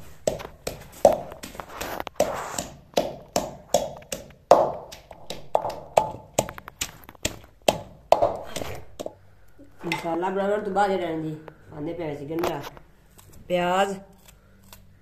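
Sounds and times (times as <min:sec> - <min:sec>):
pestle pounding in clay mortar: 0:00.0 - 0:09.2.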